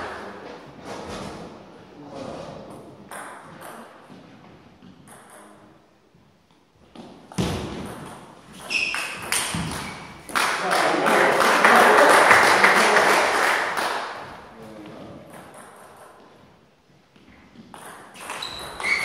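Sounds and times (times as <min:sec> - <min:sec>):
table tennis ball hits: 0:03.1 - 0:04.0, 0:04.9 - 0:05.7, 0:07.0 - 0:11.0, 0:17.6 - 0:19.0
high squeak: 0:08.6 - 0:10.1, 0:18.2 - 0:19.0.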